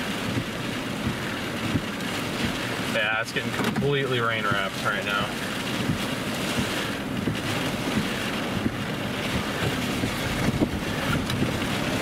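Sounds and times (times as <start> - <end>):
wind buffeting microphone: 5.3 - 12.0.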